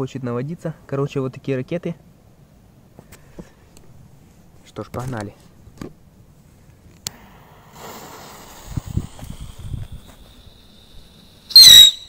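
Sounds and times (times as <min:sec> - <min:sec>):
firework fuse hissing: 0:07.1 - 0:12.0.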